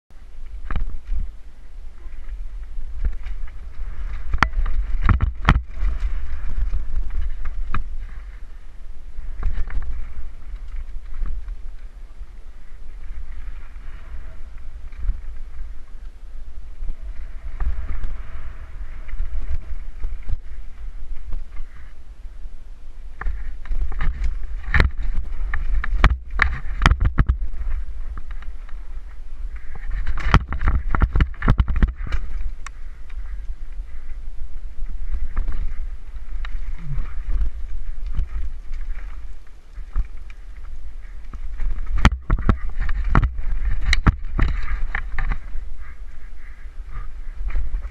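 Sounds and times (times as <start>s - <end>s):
wind rumbling on microphone: 0.1s - 47.9s
tyre noise on dirt and stones: 2.2s - 8.5s, 23.2s - 33.9s, 34.9s - 45.9s
bike clattering over rocks: 2.9s - 8.2s, 29.7s - 33.2s, 41.3s - 45.6s.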